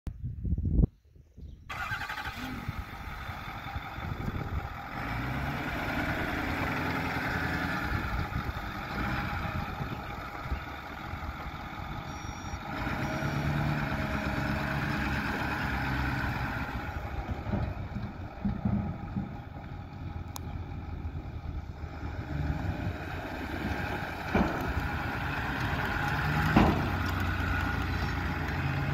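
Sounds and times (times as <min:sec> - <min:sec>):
truck engine running: 0:01.7 - 0:28.9.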